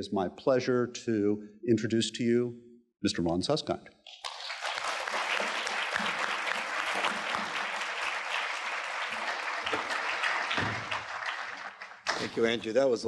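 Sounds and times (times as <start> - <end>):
audience applauding: 4.1 - 12.7.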